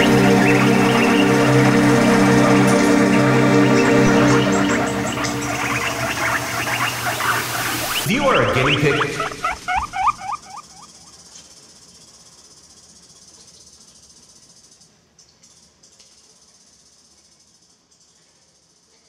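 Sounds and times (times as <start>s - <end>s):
electronic music: 0.0s - 10.0s
steady high hiss: 0.0s - 18.8s.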